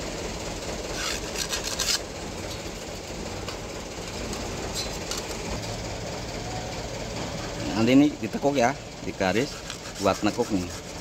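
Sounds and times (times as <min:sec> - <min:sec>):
scribing line on steel plate: 0:09.3 - 0:11.0.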